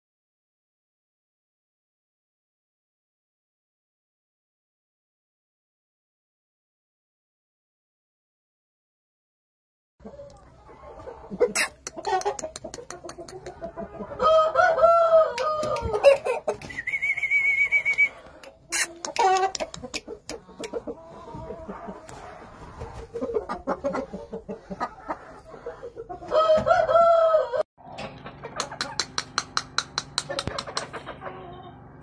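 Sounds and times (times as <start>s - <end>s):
clucks and short calls: 10.0s - 32.0s
rooster crowing: 14.2s - 18.3s, 26.3s - 27.7s.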